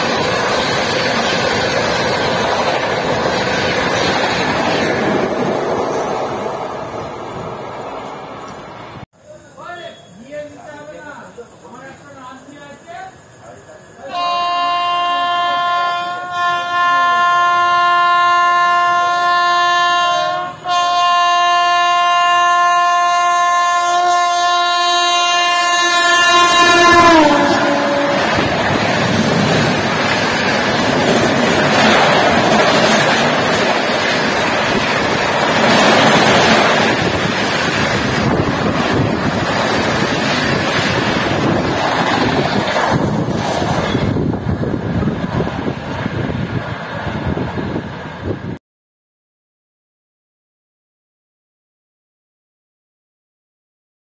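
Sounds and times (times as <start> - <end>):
train wheels rumbling on rail: 0.0 - 9.0, 24.9 - 48.6
train horn blasts: 14.1 - 28.5.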